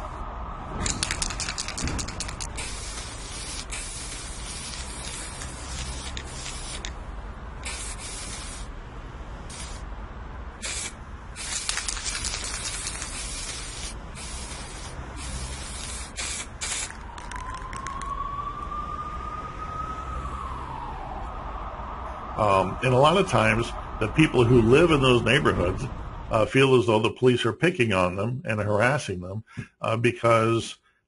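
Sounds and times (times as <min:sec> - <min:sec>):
spray paint can hissing: 0:00.8 - 0:07.0, 0:07.6 - 0:08.7, 0:09.5 - 0:09.8, 0:10.6 - 0:18.1.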